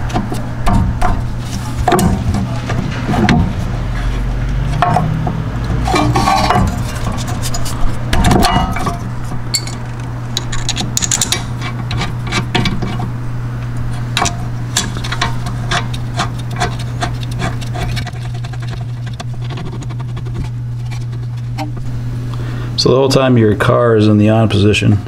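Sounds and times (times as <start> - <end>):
steady low hum: 0.0 - 25.0
metal brake parts clicking and tapping: 8.2 - 13.0.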